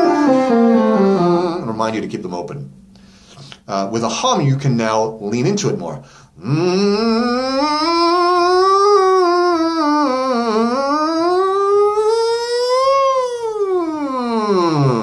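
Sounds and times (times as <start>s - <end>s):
man humming: 0.0s - 1.8s, 6.4s - 15.0s.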